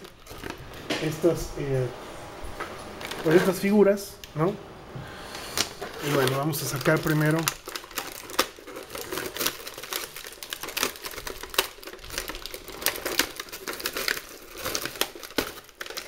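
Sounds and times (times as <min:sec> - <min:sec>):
plastic blister tray crinkling: 0:00.0 - 0:01.4, 0:02.9 - 0:03.8, 0:05.5 - 0:16.0.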